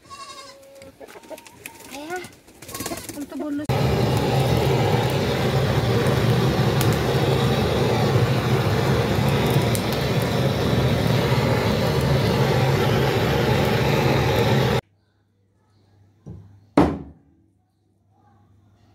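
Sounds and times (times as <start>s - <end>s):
gas blowtorch rushing: 3.7s - 14.8s.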